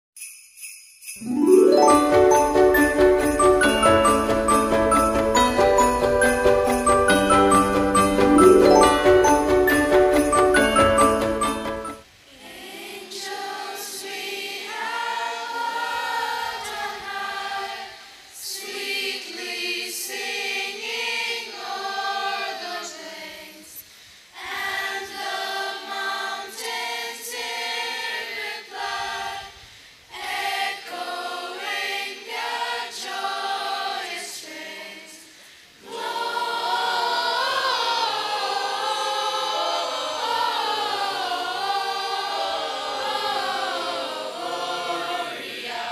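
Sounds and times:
children's choir singing a carol: 1.2s - 23.8s, 24.4s - 45.9s.

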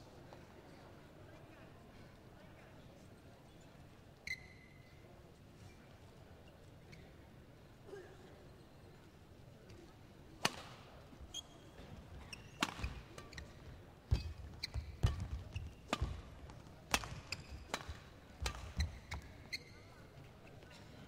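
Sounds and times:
shoe squeaks on court floor: 4.2s - 5.0s, 11.3s - 16.3s, 17.0s - 20.3s
racket striking shuttlecock: 10.4s - 10.8s, 12.6s - 13.4s, 14.9s - 19.3s.

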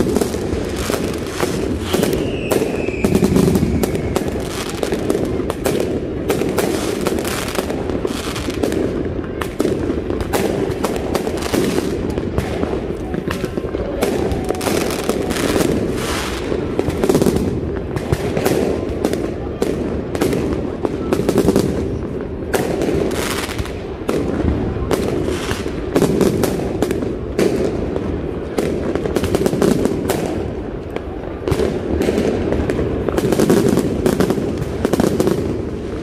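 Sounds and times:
fireworks bangs and crackles: 0.0s - 36.0s
falling firework whistle: 0.8s - 5.2s, 13.3s - 16.6s.

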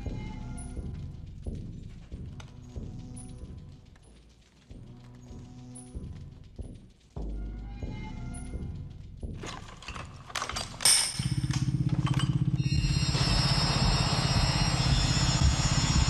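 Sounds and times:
clicks and knocks: 9.2s - 12.6s.

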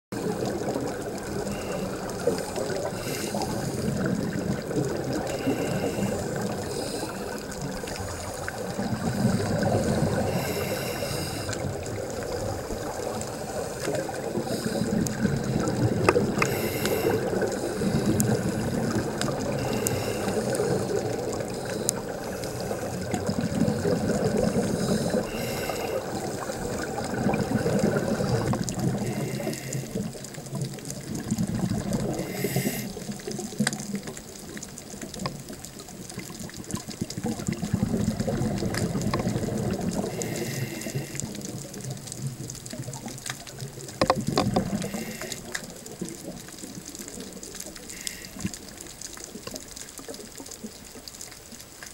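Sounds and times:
exhaled air bubbling: 0.1s - 51.9s
regulator inhalation hiss: 1.4s - 3.9s, 5.3s - 7.5s, 9.5s - 11.6s, 16.4s - 18.9s, 19.5s - 23.1s, 24.6s - 26.8s, 32.2s - 33.0s, 40.1s - 41.3s, 44.8s - 45.5s.

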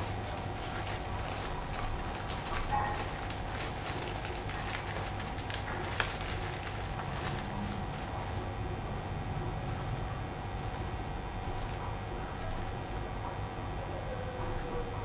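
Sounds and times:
foil packet crinkling: 0.0s - 8.5s, 10.6s - 13.0s.

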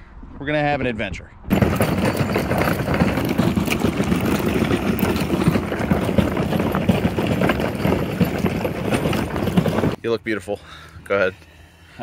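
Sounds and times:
cart wheels rolling over gravel: 1.5s - 10.0s.

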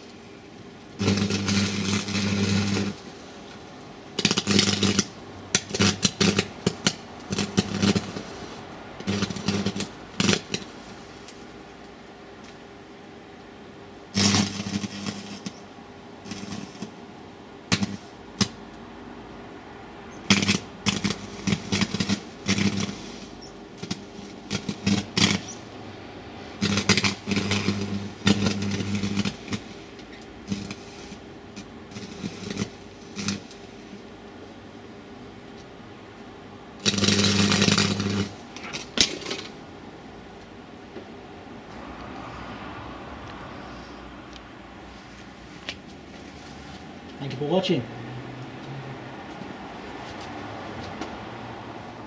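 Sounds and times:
electric arc crackling buzz: 0.0s - 18.8s, 19.5s - 34.5s, 35.1s - 40.6s.

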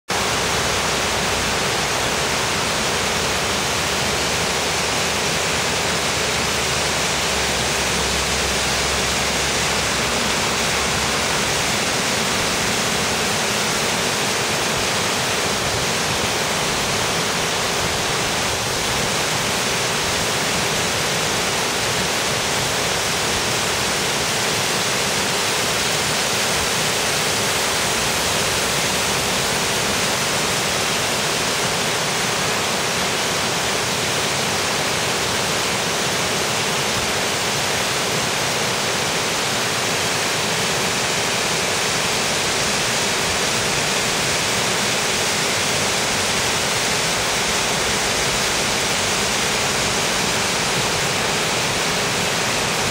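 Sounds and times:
waterfall rushing: 0.1s - 52.9s.

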